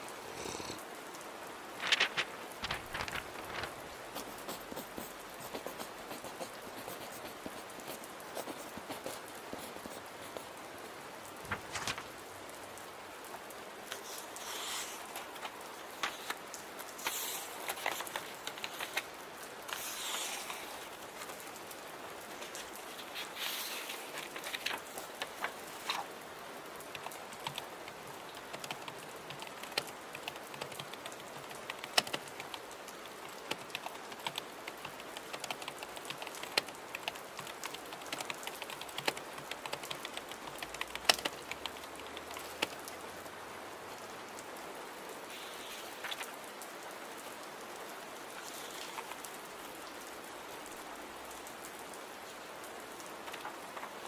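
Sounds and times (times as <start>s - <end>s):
steady rain: 0.0s - 54.0s
keyboard typing: 1.8s - 10.4s, 26.8s - 42.9s.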